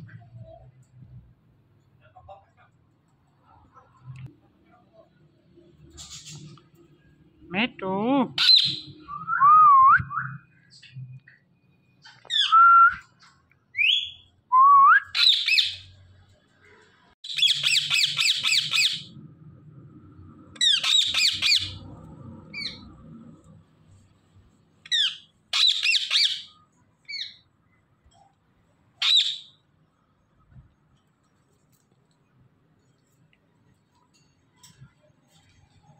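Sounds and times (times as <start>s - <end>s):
parakeet harsh squawks: 8.4s - 9.0s, 17.2s - 19.1s, 20.6s - 21.9s, 24.9s - 27.4s, 29.0s - 29.6s.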